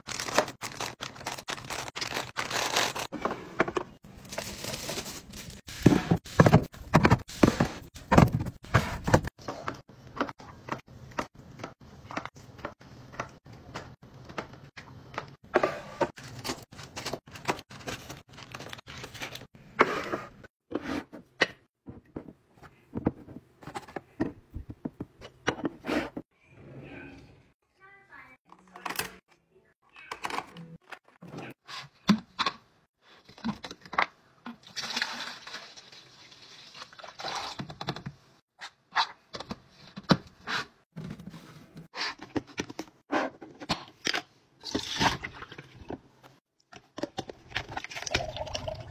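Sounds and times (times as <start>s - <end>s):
plastic snack bags crinkling: 0.0s - 3.2s, 16.8s - 19.5s.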